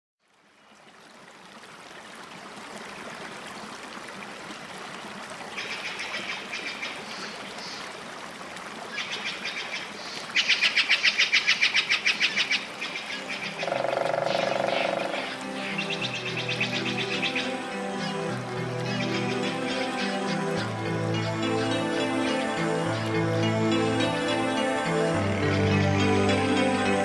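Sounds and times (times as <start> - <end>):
running water rushing: 0.2 - 27.0
small birds trilling: 11.5 - 23.1
soft music: 12.2 - 27.0.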